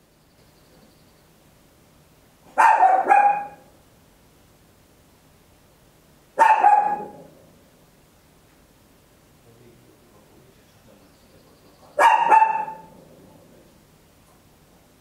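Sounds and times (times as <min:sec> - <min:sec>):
small dog barking: 0:02.5 - 0:03.7, 0:06.4 - 0:07.4, 0:12.0 - 0:13.1.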